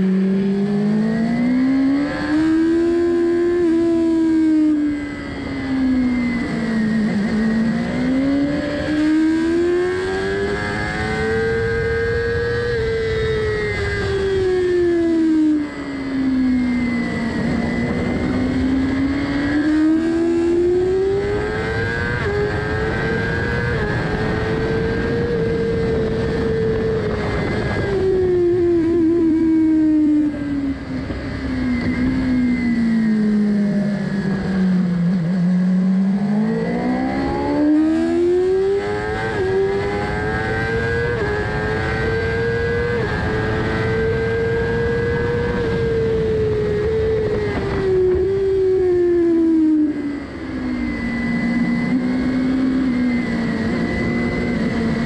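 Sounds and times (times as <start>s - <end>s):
motorcycle engine revving: 0.0s - 55.0s
wind rush: 20.8s - 35.5s.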